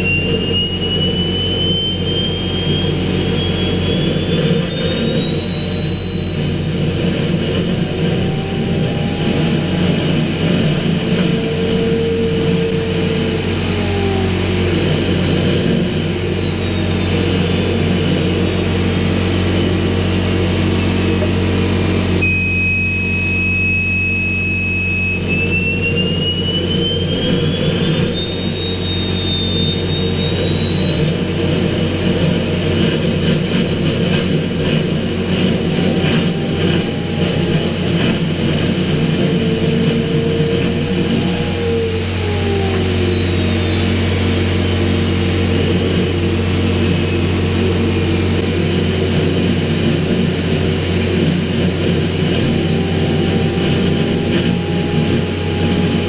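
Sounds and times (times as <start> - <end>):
jet engine roar and turbine whine: 0.0 - 56.0.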